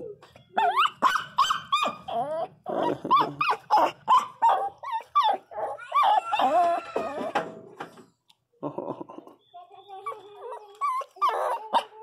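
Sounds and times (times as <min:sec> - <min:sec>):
dogs whining and yelping: 0:00.0 - 0:07.7, 0:09.6 - 0:12.0
dog growling: 0:02.1 - 0:07.3.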